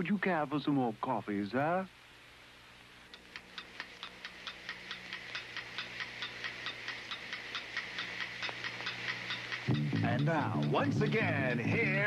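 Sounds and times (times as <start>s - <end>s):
faint steady hum: 0.0s - 12.0s
clock ticking quickly: 3.1s - 12.0s.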